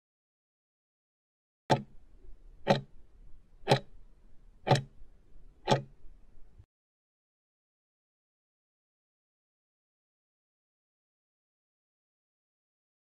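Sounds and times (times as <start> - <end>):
clock ticks: 1.7 - 2.0, 2.6 - 2.9, 3.6 - 4.0, 4.6 - 5.0, 5.6 - 6.0.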